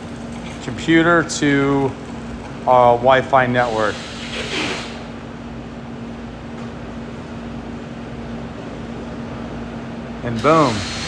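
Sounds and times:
room noise hum and hiss: 0:00.0 - 0:11.0.

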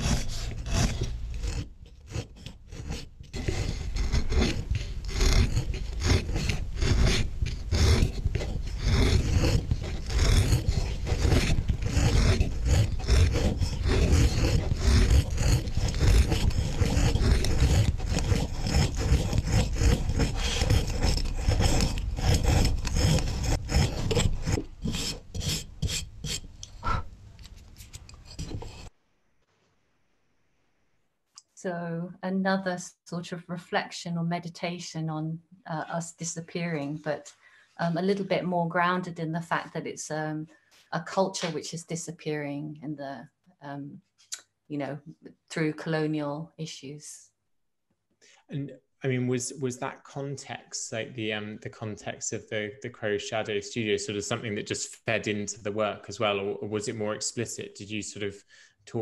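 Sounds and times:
scratchy rasping and rubbing: 0:00.0 - 0:29.0, 0:35.8 - 0:40.2, 0:53.4 - 0:55.5.

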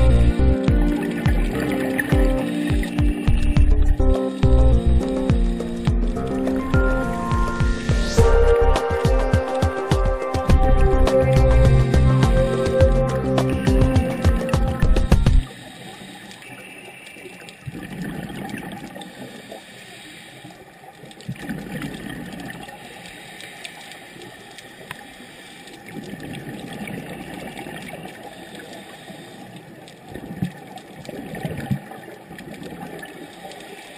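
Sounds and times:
steady underwater hiss: 0:00.0 - 0:33.9
scuba exhalation bubbles: 0:17.6 - 0:19.0, 0:30.1 - 0:33.2.

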